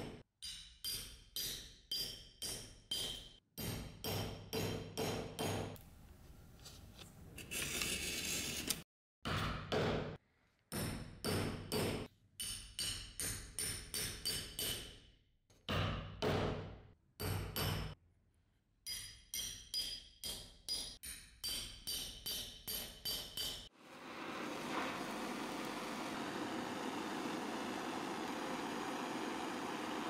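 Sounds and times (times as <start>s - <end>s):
hammer striking steel chisel: 0.0s - 5.8s, 10.7s - 15.0s, 17.2s - 18.0s, 18.9s - 23.7s.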